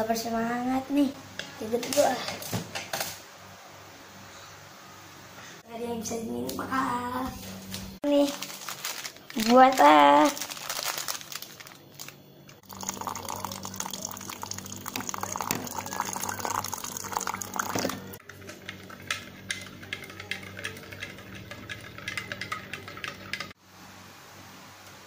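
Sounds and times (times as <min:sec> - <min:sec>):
water running into glass mug: 0:12.6 - 0:23.5
spoon clinking against glass: 0:12.8 - 0:23.5.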